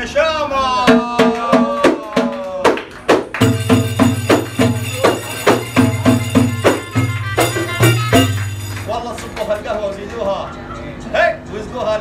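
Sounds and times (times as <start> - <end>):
frame drums and tambourines: 3.1 - 9.6.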